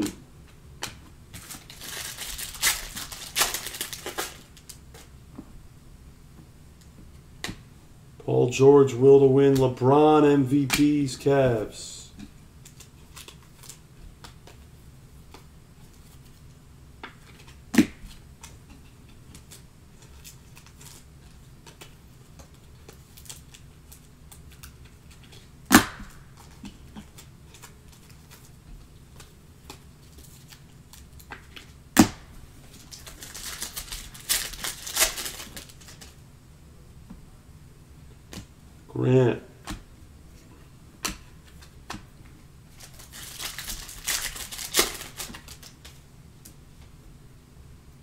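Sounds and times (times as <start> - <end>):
foil wrapper crinkling: 1.3 - 5.1, 12.6 - 14.6, 19.3 - 25.5, 32.7 - 36.2, 42.7 - 46.0.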